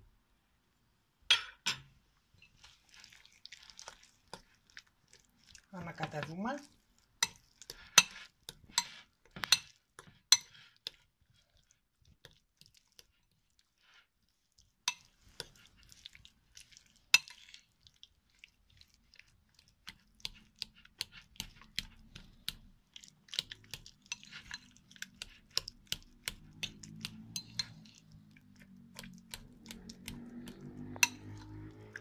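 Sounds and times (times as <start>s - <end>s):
metal utensil scraping glass bowl: 7.2s - 10.8s, 24.0s - 25.6s, 26.6s - 28.2s, 29.4s - 32.0s.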